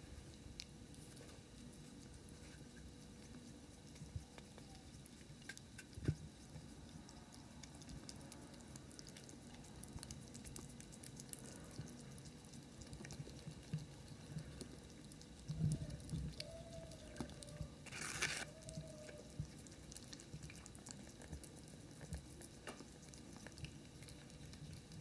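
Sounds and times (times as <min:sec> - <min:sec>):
ferrets licking and smacking: 0:00.1 - 0:25.0.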